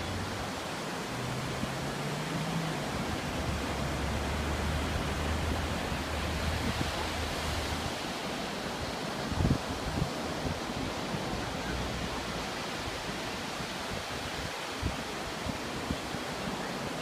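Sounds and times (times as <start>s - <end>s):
ocean surf breaking on beach: 0.0s - 17.0s.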